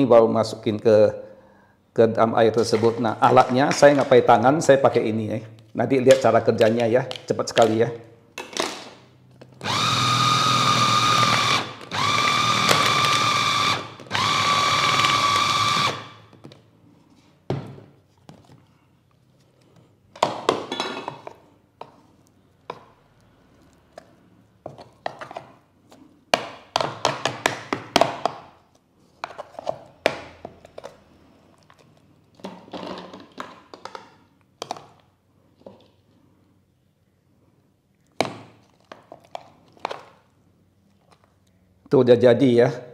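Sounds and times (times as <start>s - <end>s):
food chopper motor whining: 9.6s - 16.3s.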